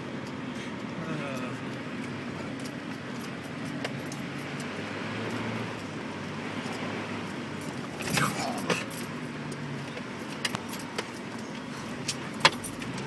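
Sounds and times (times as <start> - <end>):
engine hum: 0.0 - 13.0
water and tyres hissing: 0.0 - 13.0.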